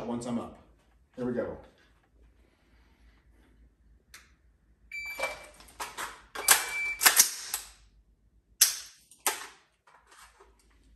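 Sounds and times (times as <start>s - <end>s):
shot timer beeps: 6.4s - 7.1s.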